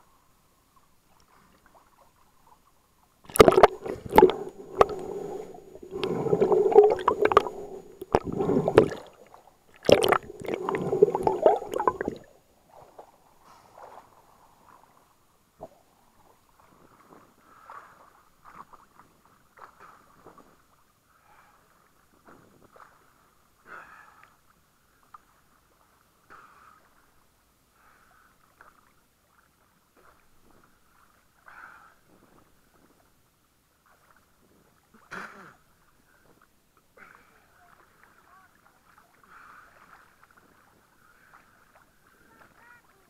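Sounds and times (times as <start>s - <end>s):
small waves splashing: 0.8s - 24.1s, 27.9s - 43.0s
loud splash: 3.3s - 9.2s, 9.8s - 12.3s.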